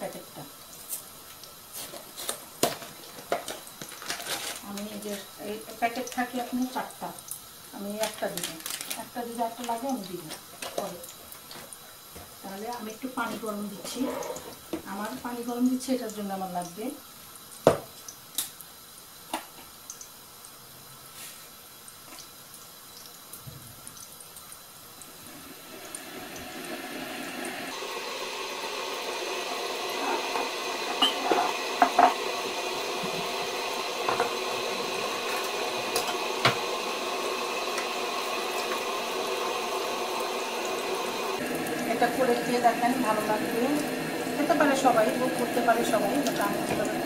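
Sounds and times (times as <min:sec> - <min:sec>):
electric kettle heating water: 0:00.0 - 0:20.2, 0:21.8 - 0:47.0.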